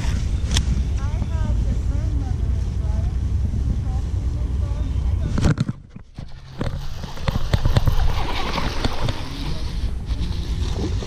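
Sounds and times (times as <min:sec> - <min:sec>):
low rumble: 0:00.0 - 0:11.0
fish splashing: 0:06.1 - 0:11.0.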